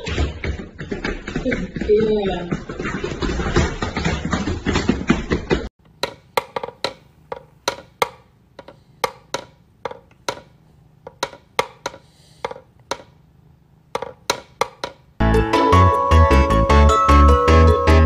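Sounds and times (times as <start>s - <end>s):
wooden toy clicks: 5.8s - 13.2s, 14.0s - 15.1s.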